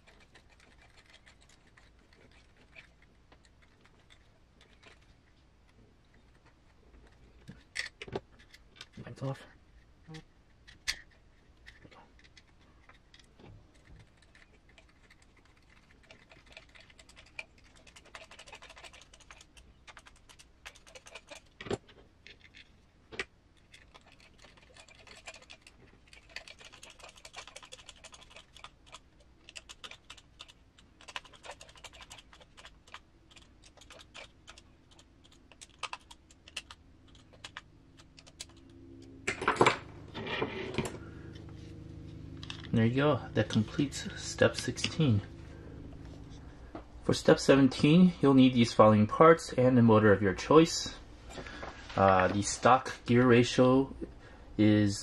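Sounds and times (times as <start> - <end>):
screws and plastic parts clicking: 6.2 - 9.1
parts clattering: 39.2 - 41.7.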